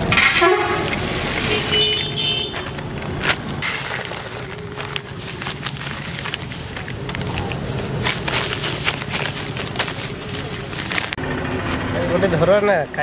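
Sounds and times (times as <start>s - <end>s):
corn kernels rattling onto plastic: 3.6s - 11.2s.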